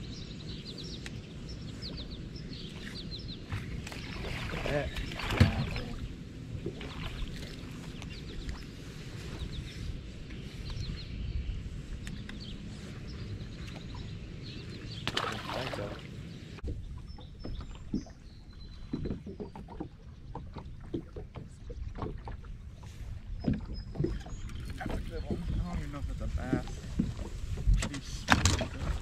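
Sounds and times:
low rumble of wind and water: 0:00.0 - 0:29.0
water splash: 0:03.5 - 0:07.7, 0:15.0 - 0:16.2.

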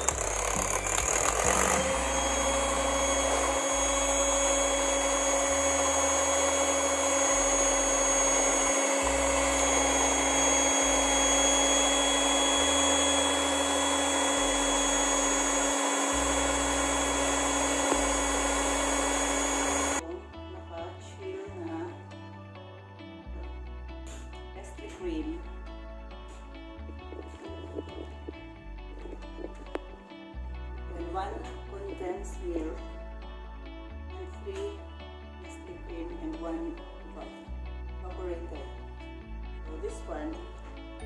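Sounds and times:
electric hand mixer whipping liquid: 0:00.0 - 0:20.0.

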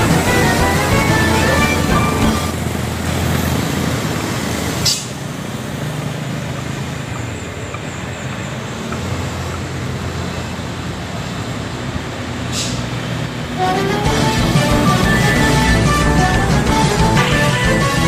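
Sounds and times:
cars passing: 0:00.0 - 0:18.0
truck engine pulling away: 0:00.0 - 0:18.0
short hisses: 0:12.5 - 0:12.9.

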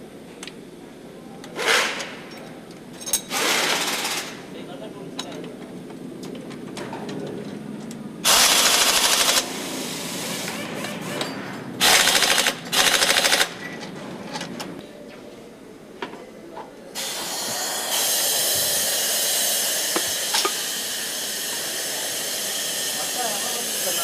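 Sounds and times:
machinery rapid rattling: 0:08.3 - 0:09.5, 0:11.8 - 0:13.6.

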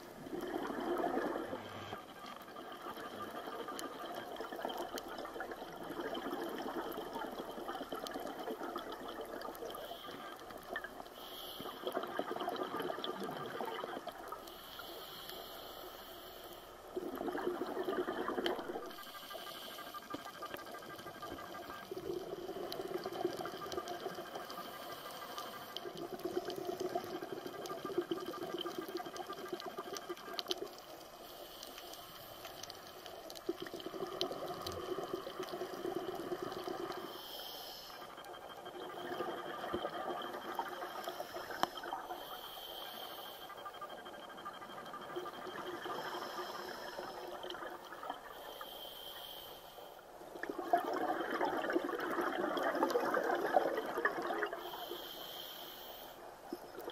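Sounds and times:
exhaled air bubbling: 0:00.0 - 0:14.8, 0:16.6 - 0:31.2, 0:32.5 - 0:42.8, 0:43.4 - 0:48.6, 0:50.0 - 0:55.1, 0:56.3 - 0:56.9
regulator breathing underwater: 0:00.4 - 0:04.8, 0:09.3 - 0:20.6, 0:30.8 - 0:44.6, 0:45.3 - 0:50.1, 0:50.9 - 0:56.4.

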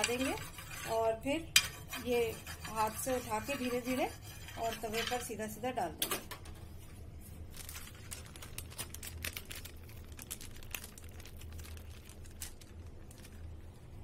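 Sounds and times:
steady low hum: 0:00.0 - 0:14.0
plastic sheet crinkling: 0:07.2 - 0:14.0.

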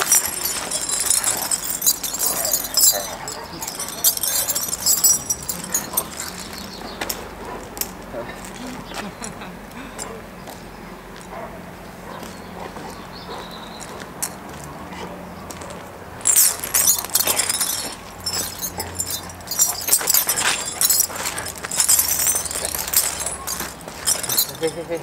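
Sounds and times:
dog scuffling: 0:00.0 - 0:06.7, 0:16.2 - 0:25.0
metal chain rattling: 0:00.0 - 0:08.0, 0:16.2 - 0:25.0.

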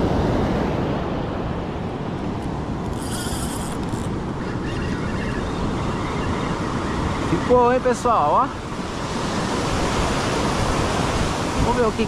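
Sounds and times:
wind on microphone: 0:00.0 - 0:12.0
brief high hiss: 0:02.9 - 0:04.1
surf breaking on beach: 0:06.9 - 0:12.0.

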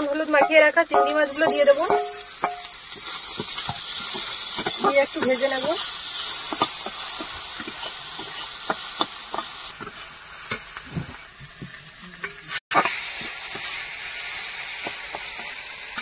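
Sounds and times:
prawns sizzling in hot oil: 0:00.0 - 0:16.0
metal spatula scraping pan: 0:00.3 - 0:10.0.

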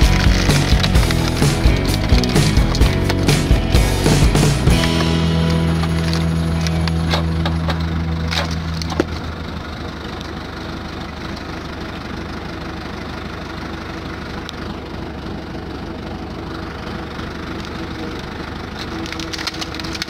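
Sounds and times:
wood cracking and splintering: 0:00.0 - 0:09.5, 0:17.2 - 0:20.0
tractor diesel engine working: 0:00.0 - 0:20.0.

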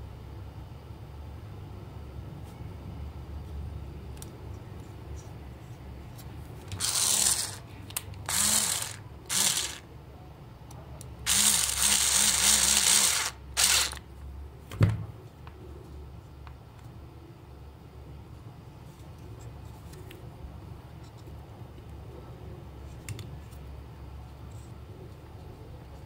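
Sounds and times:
electric screwdriver driving screws: 0:06.8 - 0:07.6, 0:08.3 - 0:09.8, 0:11.3 - 0:14.0.

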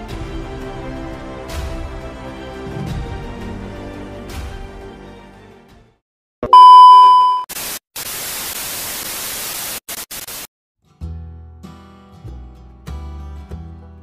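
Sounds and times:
background music: 0:00.0 - 0:06.0
steady beep tone: 0:06.4 - 0:07.5
tv static hiss: 0:07.5 - 0:10.5.

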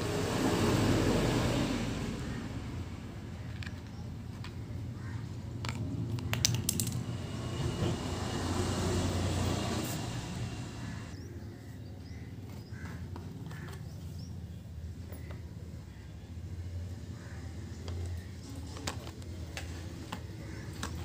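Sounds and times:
low steady background rumble: 0:00.0 - 0:21.0
batteries being handled: 0:03.4 - 0:07.1, 0:17.9 - 0:21.0.

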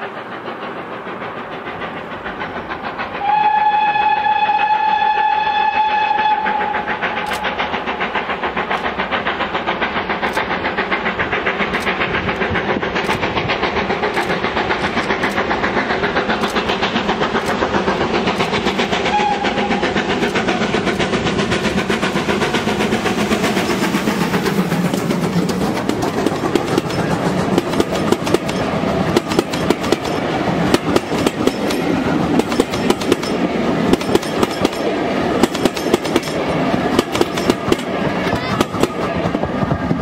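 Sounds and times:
steam locomotive exhaust beats: 0:00.0 - 0:40.0
steam locomotive whistle: 0:03.2 - 0:07.6, 0:19.0 - 0:19.9.

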